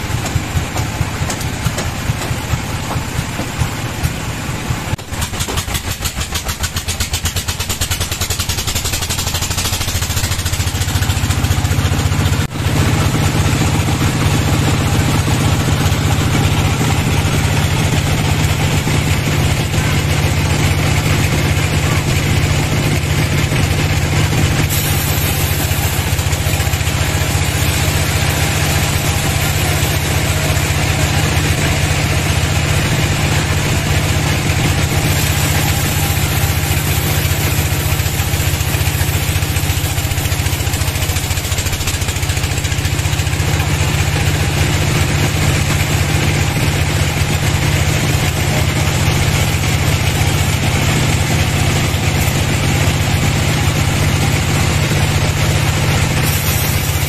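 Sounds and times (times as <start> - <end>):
sawmill drive drone: 7.8 - 57.0
saw blade hissing through wood: 23.1 - 42.7, 55.7 - 57.0.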